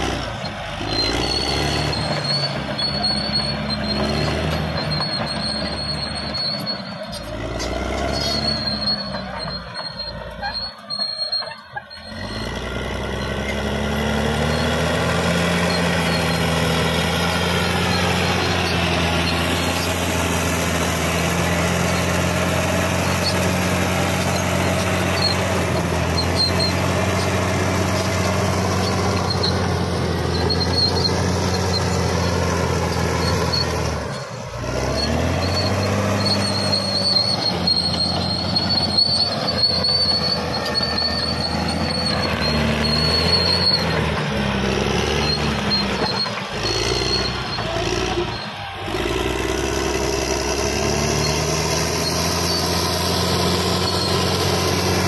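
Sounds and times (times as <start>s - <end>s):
bulldozer diesel engine running: 0.0s - 55.0s
steel tracks squealing: 0.0s - 55.0s.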